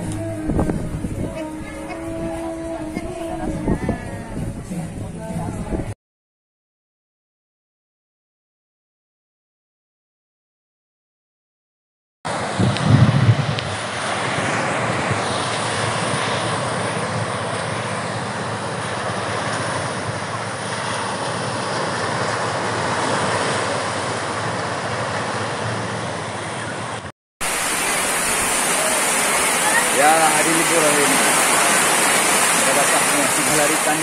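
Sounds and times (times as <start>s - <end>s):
wind blowing across microphone: 0.0s - 6.0s, 12.3s - 34.0s
surf breaking on beach: 12.3s - 34.0s
rain on a metal roof: 27.4s - 34.0s.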